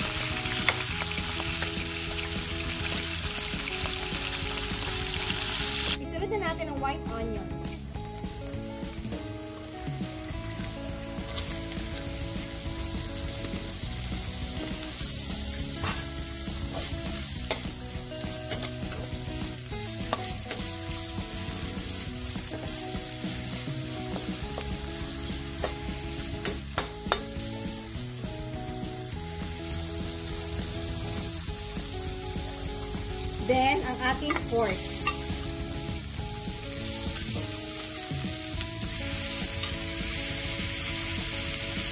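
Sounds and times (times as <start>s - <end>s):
onions sizzling in hot oil: 0.0s - 6.1s, 7.0s - 41.9s.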